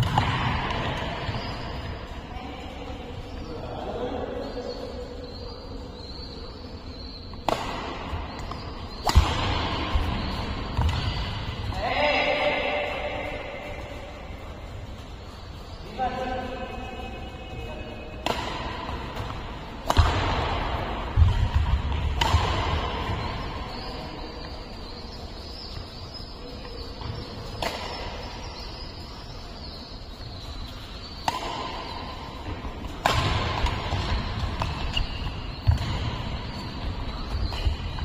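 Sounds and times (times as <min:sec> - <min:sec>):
racket smacking shuttlecock: 0:00.0 - 0:01.6, 0:07.1 - 0:11.9, 0:18.0 - 0:38.0.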